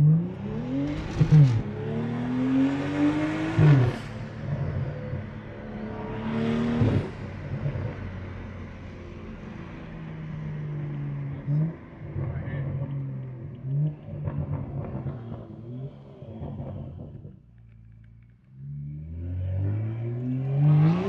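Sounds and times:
car engine accelerating: 0:00.0 - 0:21.0.

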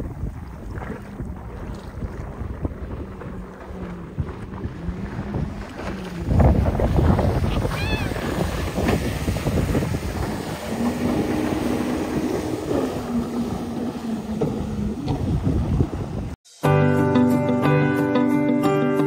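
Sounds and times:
boat engine drone: 0:00.0 - 0:16.4
wind buffeting microphone: 0:00.0 - 0:16.4
water spray rushing: 0:05.4 - 0:16.3.

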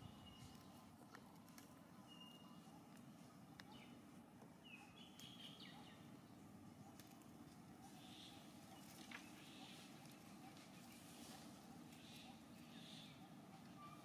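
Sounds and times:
steady low hum: 0:00.0 - 0:14.0
high bird chirps: 0:02.0 - 0:02.7.

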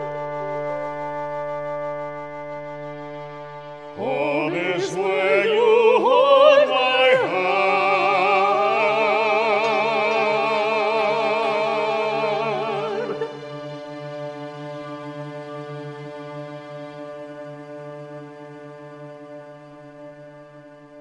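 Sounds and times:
instrumental accompaniment: 0:00.0 - 0:21.0
operatic singing: 0:03.9 - 0:15.5.

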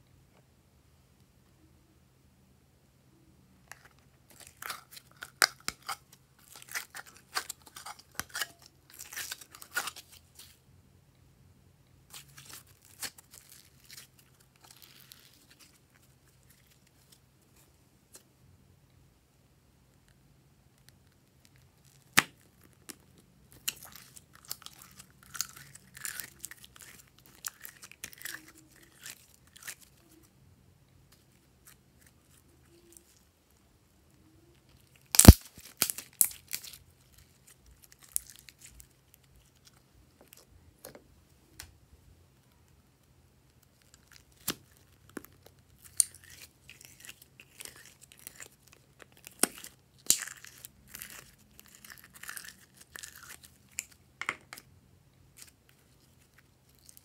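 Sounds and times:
sticky slime crackling and tearing: 0:04.3 - 0:10.6, 0:12.1 - 0:17.2, 0:21.5 - 0:30.2, 0:34.7 - 0:40.4, 0:43.6 - 0:54.0.

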